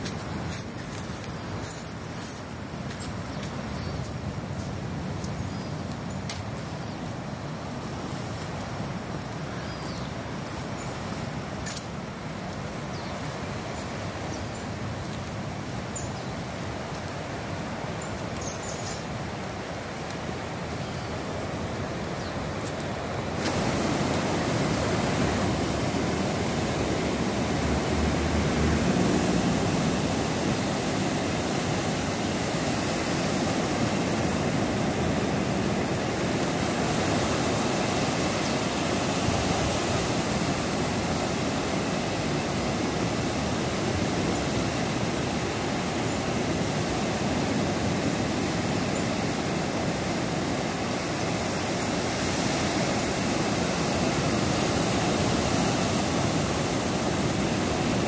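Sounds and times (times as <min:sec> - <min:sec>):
ocean surf breaking: 0:19.0 - 0:58.0.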